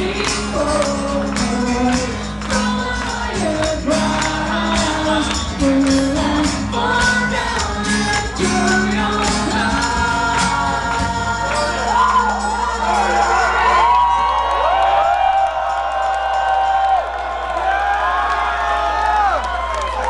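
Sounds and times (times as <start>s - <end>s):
man and woman singing together: 0.0s - 13.2s
acoustic guitars: 0.0s - 13.9s
percussion beat: 0.0s - 14.2s.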